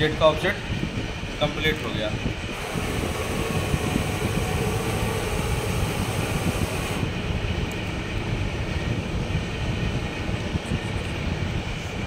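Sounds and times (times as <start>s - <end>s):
workshop machinery humming: 0.6s - 10.0s.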